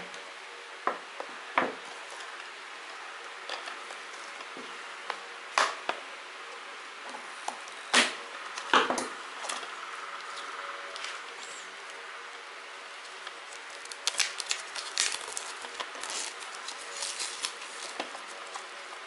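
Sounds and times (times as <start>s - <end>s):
plastic crinkling: 13.0s - 19.0s
plastic wrap rustling: 13.0s - 19.0s.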